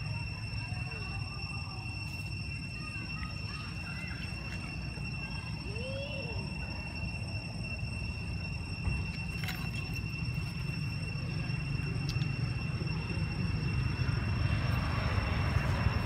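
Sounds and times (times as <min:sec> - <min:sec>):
high insect drone: 0:00.0 - 0:16.0.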